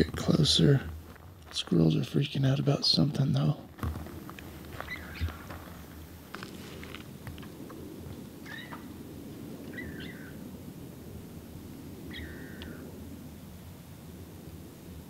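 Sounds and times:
squirrel alarm calls: 4.7 - 5.4, 8.4 - 8.9, 9.6 - 10.4, 12.0 - 12.8.

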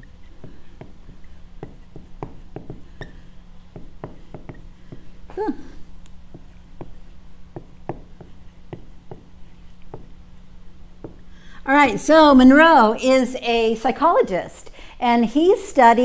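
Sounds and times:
marker writing on whiteboard: 0.0 - 5.2, 6.3 - 11.4
low steady hum: 0.0 - 16.0.

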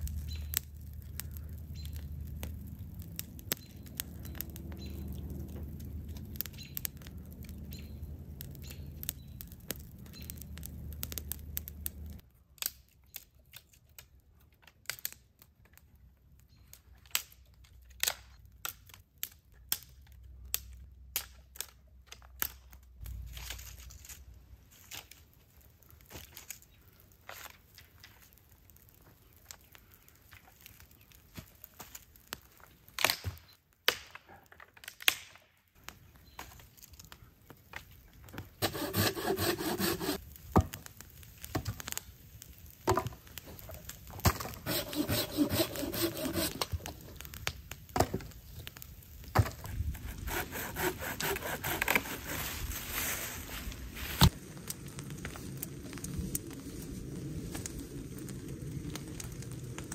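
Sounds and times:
low rumble: 0.0 - 12.2.

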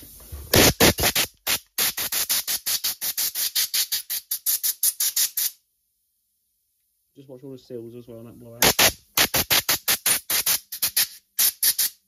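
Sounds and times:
compressed air bursts: 0.4 - 5.6, 8.6 - 12.0.

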